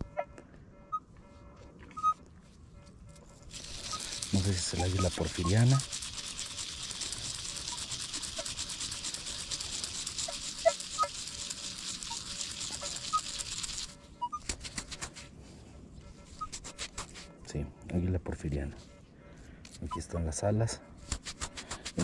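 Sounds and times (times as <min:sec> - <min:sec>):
coin being scrubbed: 0:03.4 - 0:15.3, 0:16.2 - 0:17.4, 0:21.1 - 0:22.0.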